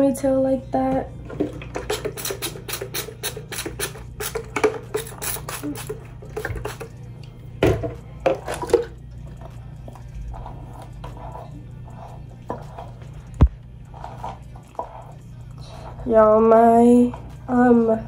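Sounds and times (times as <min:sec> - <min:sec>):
spray bottle squirts: 0:01.9 - 0:06.9.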